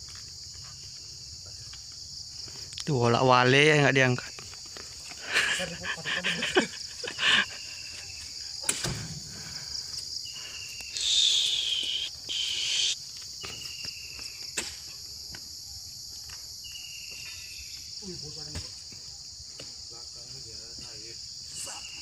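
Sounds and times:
insect chorus: 0.0 - 22.0
loud insect buzz: 6.4 - 14.6
short falling-pitch calls: 10.9 - 13.0.

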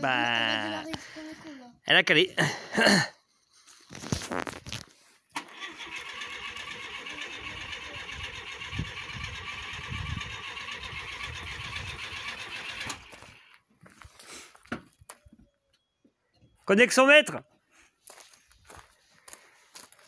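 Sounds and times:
starter cranking car engine: 5.4 - 13.5.

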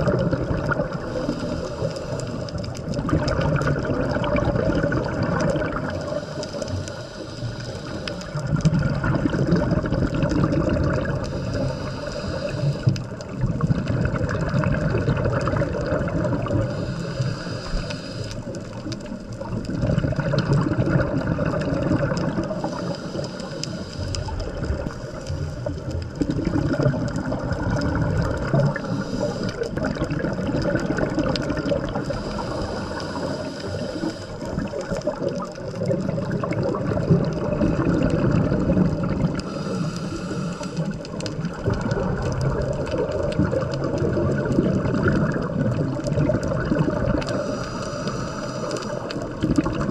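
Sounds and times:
underwater bubbling and gurgling: 0.0 - 49.9.

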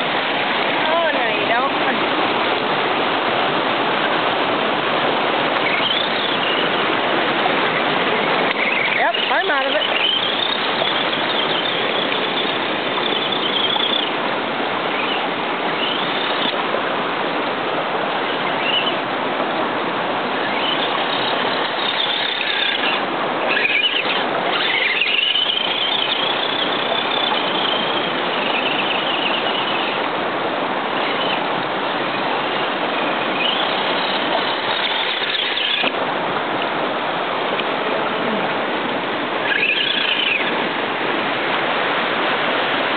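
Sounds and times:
creek water rushing: 0.0 - 42.9
electric motor whine: 20.2 - 30.2, 30.8 - 36.0.

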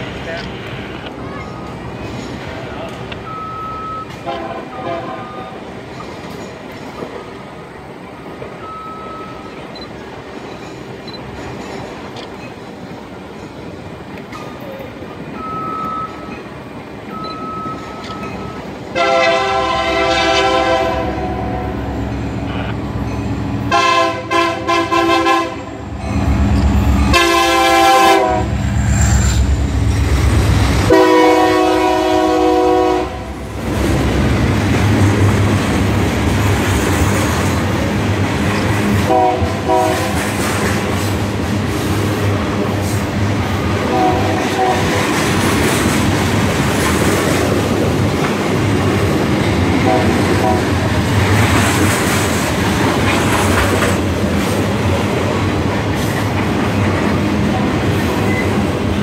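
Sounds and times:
locomotive engine rumble: 0.0 - 59.0
train cars rolling: 0.0 - 59.0
locomotive air horn: 3.7 - 5.6, 18.9 - 22.0, 23.7 - 25.8, 27.1 - 28.7, 30.9 - 33.4, 39.1 - 40.2, 43.9 - 44.9, 49.9 - 50.7.

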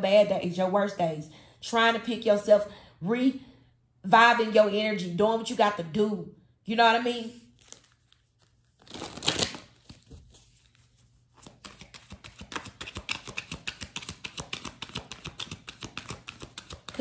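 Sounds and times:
cards shuffling: 7.6 - 17.0.

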